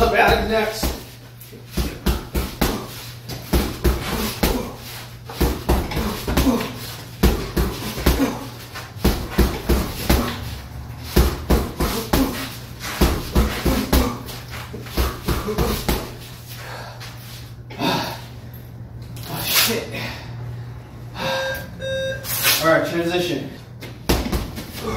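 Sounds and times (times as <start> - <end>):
steady low hum: 0.0 - 24.9
punches on heavy bag: 1.7 - 10.4, 11.1 - 14.3.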